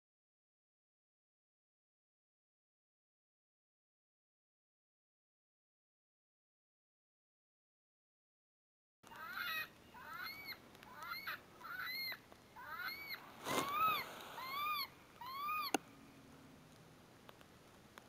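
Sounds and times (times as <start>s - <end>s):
electronic animal distress squeals: 9.1s - 15.8s
brief hiss of noise: 13.2s - 14.6s.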